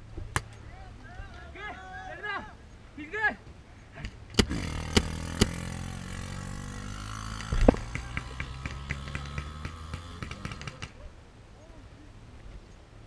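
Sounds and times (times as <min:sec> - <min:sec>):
steady low hum: 0:03.6 - 0:13.0
paintball markers firing: 0:04.3 - 0:05.6, 0:07.3 - 0:11.0.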